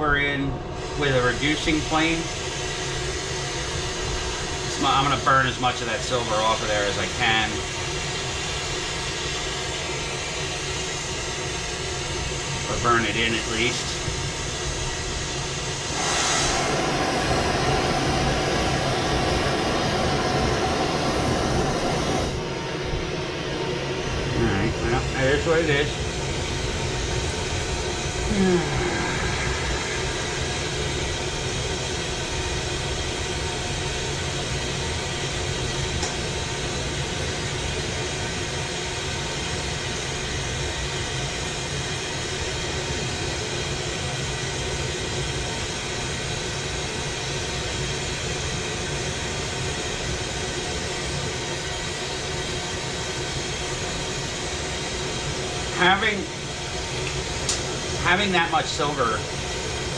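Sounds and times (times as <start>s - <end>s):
torch flame rushing: 13.2s - 23.2s, 24.0s - 36.9s
sound with falling pitch: 15.9s - 22.4s, 28.1s - 32.6s.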